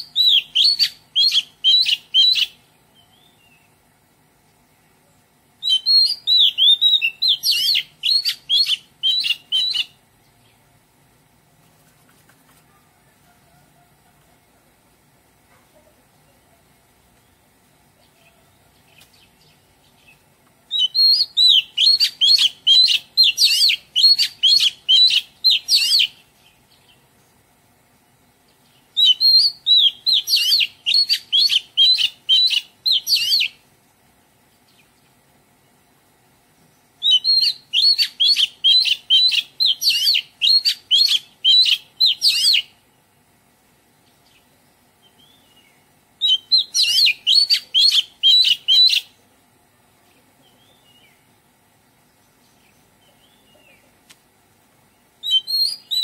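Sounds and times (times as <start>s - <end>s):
bird singing rapid high notes: 55.2s - 56.0s.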